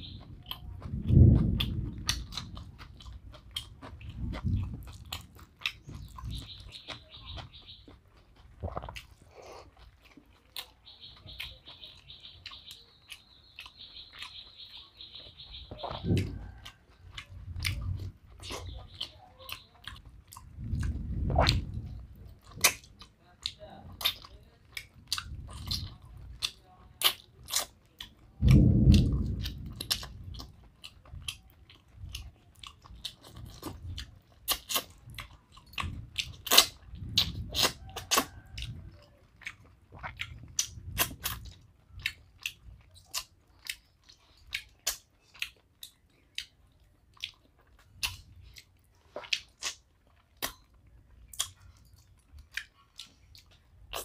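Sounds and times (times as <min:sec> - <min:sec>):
low rumbles: 0:00.0 - 0:06.8, 0:20.0 - 0:22.6, 0:28.3 - 0:34.2
close chewing: 0:00.0 - 0:54.0
wet mouth clicks and smacks: 0:33.0 - 0:38.7, 0:39.4 - 0:43.8, 0:44.4 - 0:46.6, 0:50.4 - 0:50.6, 0:51.3 - 0:51.6.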